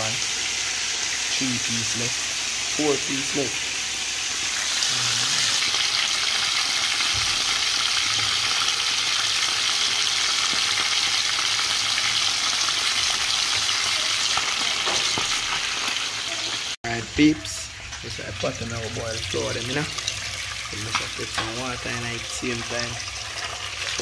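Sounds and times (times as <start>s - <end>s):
fish sizzling in hot oil: 0.0s - 24.0s.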